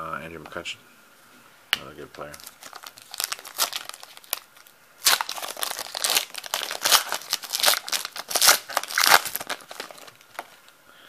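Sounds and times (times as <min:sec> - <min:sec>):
foil wrapper crinkling: 0:02.2 - 0:10.7.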